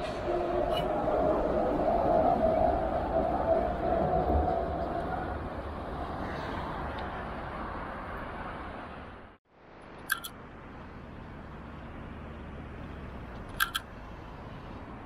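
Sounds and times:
street and tram traffic rumble: 0.0 - 15.0
sharp double clicks: 10.0 - 10.4, 13.3 - 13.9.

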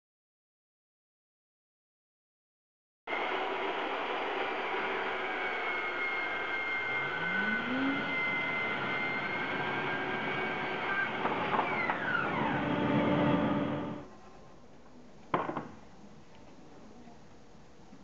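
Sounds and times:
bandsaw cutting timber: 3.1 - 14.0.

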